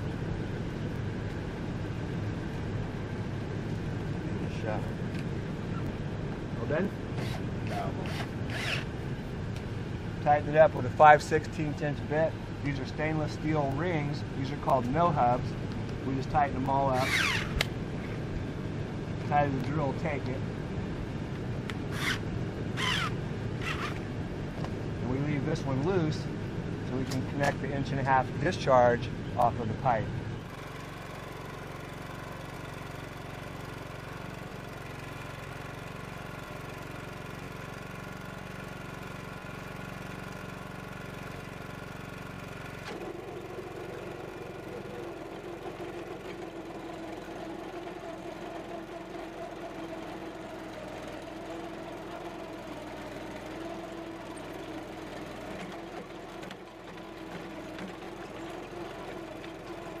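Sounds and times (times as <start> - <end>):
small gasoline engine running: 0.0 - 29.2, 29.8 - 60.0
trencher chain cutting soil: 6.6 - 8.9, 16.7 - 17.7, 21.8 - 24.1, 42.7 - 60.0.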